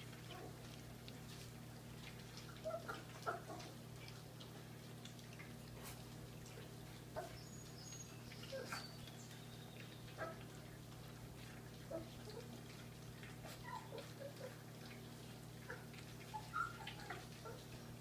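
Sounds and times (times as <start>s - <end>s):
puppies chewing and lapping: 0.0s - 18.0s
puppies squeaking: 7.2s - 10.4s, 16.3s - 17.6s.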